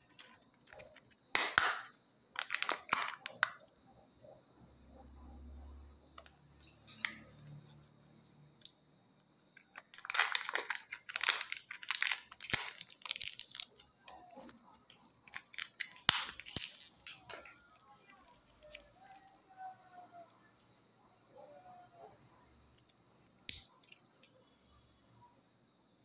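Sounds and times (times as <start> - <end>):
plastic clicks: 0.0 - 3.7, 9.6 - 20.4
lid peeling crinkling rustles: 2.4 - 3.6, 9.6 - 19.4.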